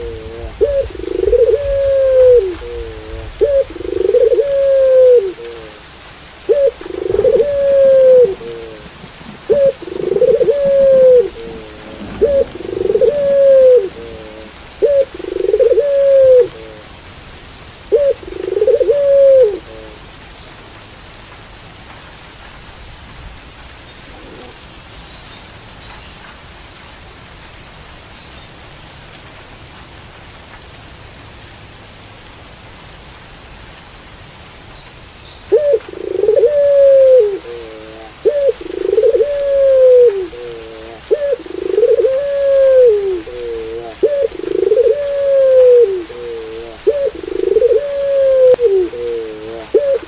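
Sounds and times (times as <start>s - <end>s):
dove cooing: 0.0s - 17.0s, 17.9s - 20.0s, 24.1s - 24.6s, 35.5s - 50.0s
steady rain hiss: 0.0s - 50.0s.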